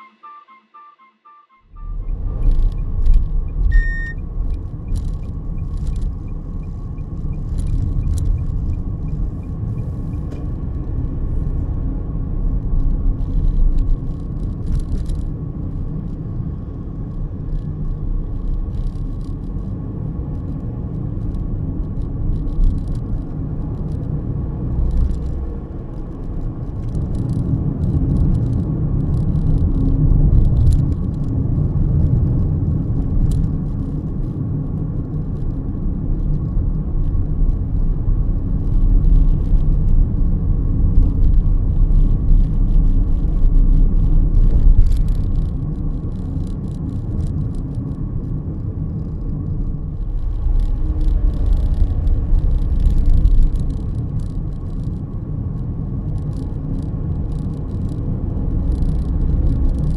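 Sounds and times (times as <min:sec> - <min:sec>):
short beep: 0:00.0 - 0:02.9, 0:03.5 - 0:04.2
car road and engine rumble: 0:01.7 - 0:59.9.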